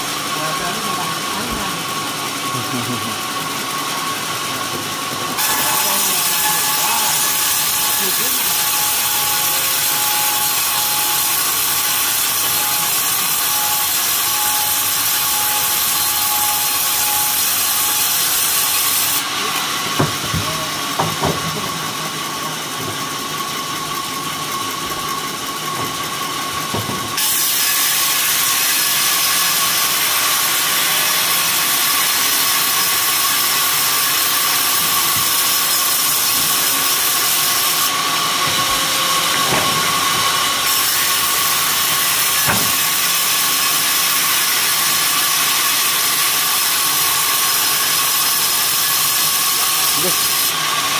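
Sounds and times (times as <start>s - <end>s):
band saw cutting timber: 0.0s - 50.9s
boards being handled: 19.9s - 21.6s, 38.2s - 41.0s, 42.3s - 43.0s.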